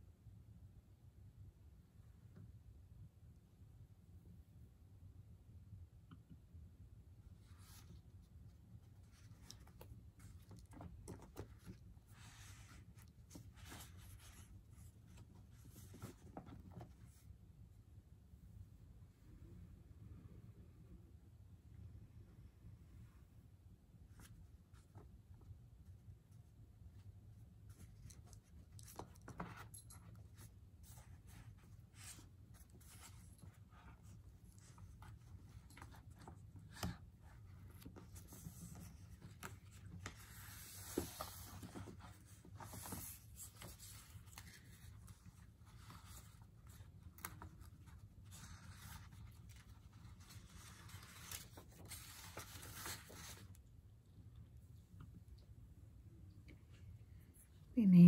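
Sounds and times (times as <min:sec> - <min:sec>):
faint rustles and clicks: 0:07.2 - 0:17.7, 0:24.1 - 0:58.0.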